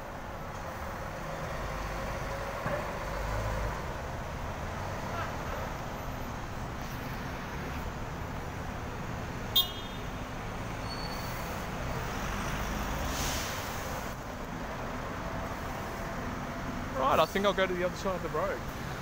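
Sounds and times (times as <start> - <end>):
traffic hum: 0.0 - 19.0.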